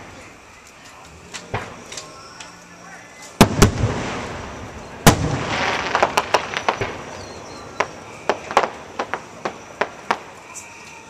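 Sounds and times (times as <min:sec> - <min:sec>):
fireworks bangs: 0:03.4 - 0:11.0.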